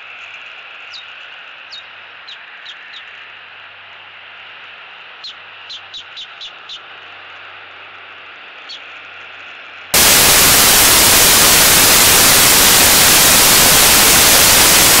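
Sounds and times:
loud static hiss: 6.9 - 15.0
low hum: 10.0 - 15.0.

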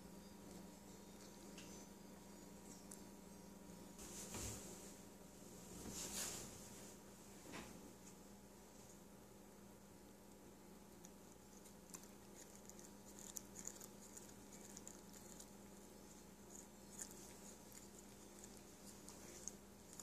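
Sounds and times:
cat chewing lettuce: 10.8 - 20.0.

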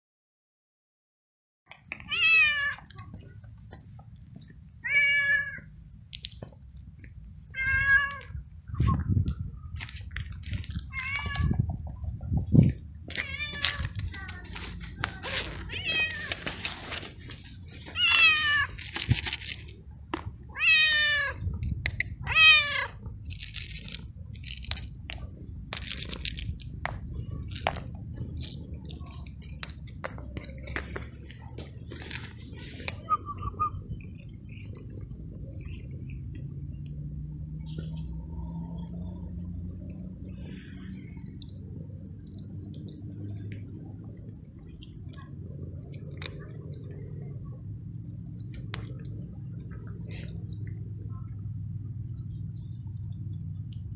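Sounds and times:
cat meowing: 2.0 - 2.9, 4.8 - 5.7, 7.5 - 8.4, 10.9 - 11.6, 13.2 - 14.4, 15.6 - 16.5, 18.0 - 18.8, 20.5 - 21.4
cat eating dry kibble: 9.8 - 37.1, 37.8 - 53.9.

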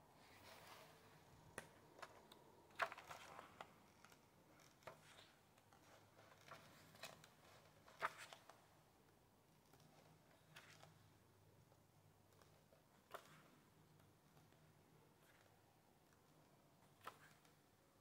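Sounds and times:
book pages turning: 0.3 - 8.5, 9.8 - 11.0, 16.9 - 17.6.

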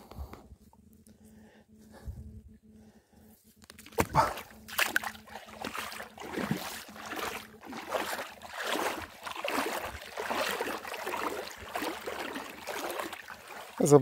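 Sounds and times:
footsteps rustling through grass: 6.3 - 13.9.

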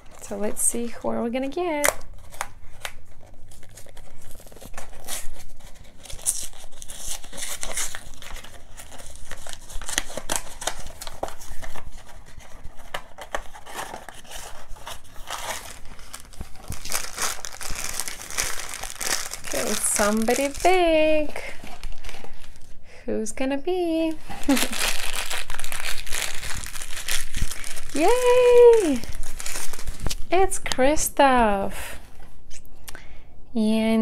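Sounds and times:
plastic bag crinkling: 0.0 - 22.8, 24.2 - 30.5
cardboard box tearing: 3.5 - 20.7.

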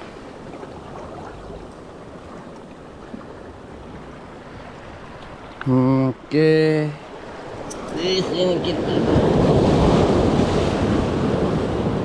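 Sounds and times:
small waves washing over rocks: 8.7 - 12.0.

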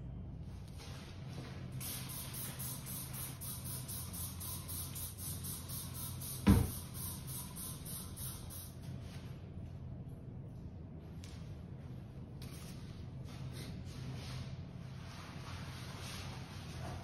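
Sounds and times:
steady low hum: 0.0 - 17.0
spray bottle spraying: 1.8 - 8.8.

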